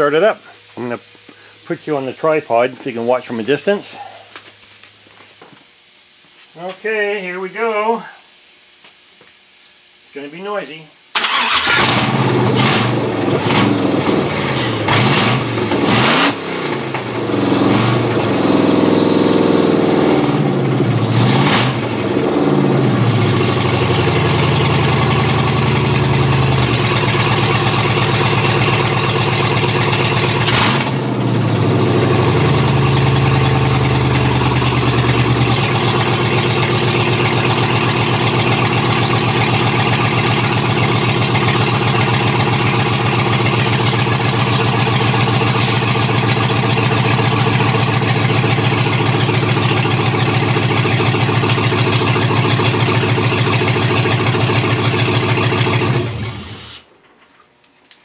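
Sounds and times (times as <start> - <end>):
loud engine revving and idling: 11.3 - 56.8.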